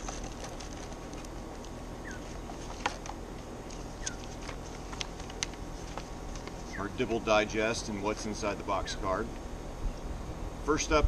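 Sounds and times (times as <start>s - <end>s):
cardboard box rustling and clicking: 0.0s - 6.7s.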